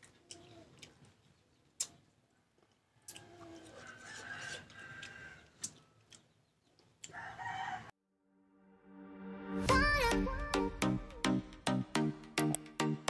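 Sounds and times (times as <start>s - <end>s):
rooster crowing faintly: 2.3s - 6.1s, 7.0s - 8.0s.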